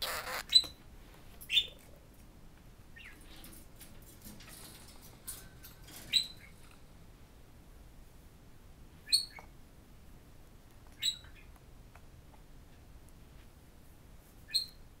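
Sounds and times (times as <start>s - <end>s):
budgerigar chirps: 0.0s - 0.8s, 9.1s - 9.4s, 11.0s - 11.4s, 14.5s - 14.8s.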